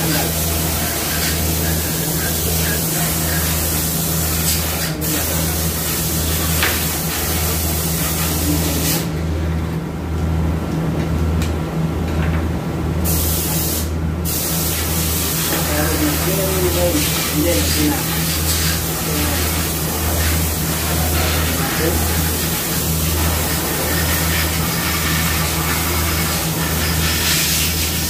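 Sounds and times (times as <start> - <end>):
low pulsing machine hum: 5.1 - 13.2
constant hiss: 13.1 - 28.0.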